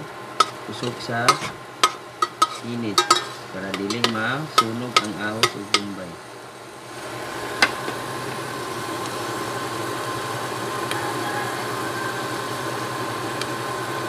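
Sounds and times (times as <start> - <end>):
faint hum: 0.0 - 14.0
onions sizzling in oil: 0.0 - 14.0
spatula tapping metal pot: 0.4 - 6.0.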